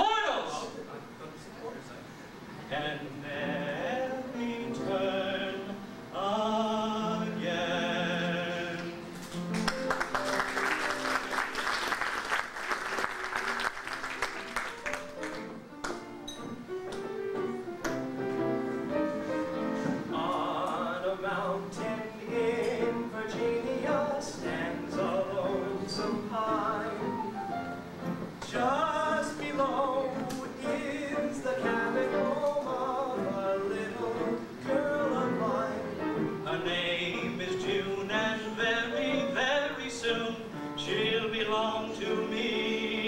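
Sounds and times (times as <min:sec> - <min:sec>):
man singing into a microphone: 0:02.7 - 0:09.1, 0:20.1 - 0:27.2, 0:28.4 - 0:43.0
instrumental accompaniment chords: 0:14.4 - 0:37.4.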